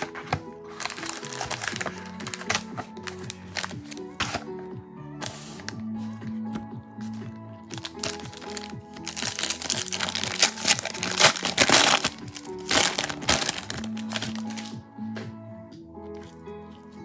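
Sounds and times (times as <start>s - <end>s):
background music: 0.0s - 17.0s
foil wrapper crinkling: 0.8s - 2.7s, 7.8s - 14.7s.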